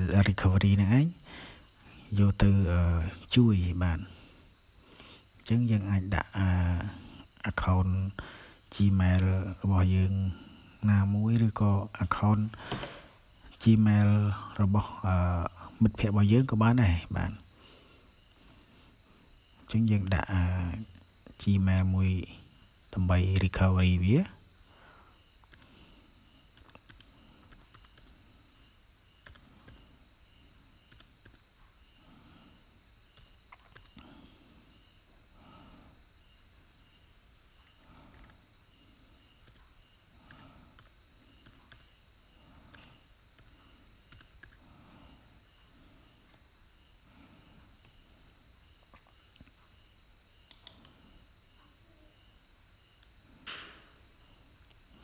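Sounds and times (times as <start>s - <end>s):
steady hiss: 0.0s - 55.0s
soft clicks: 25.4s - 25.7s, 26.5s - 28.2s, 29.2s - 29.9s, 30.9s - 31.5s, 33.1s - 34.0s, 39.4s - 39.7s, 50.5s - 51.0s.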